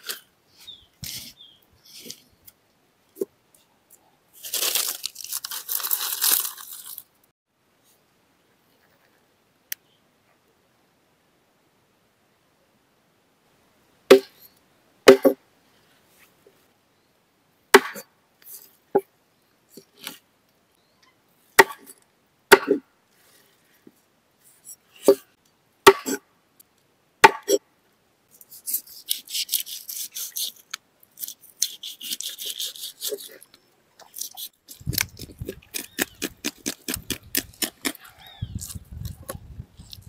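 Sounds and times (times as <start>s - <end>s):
rasping scraping: 28.4s - 33.4s.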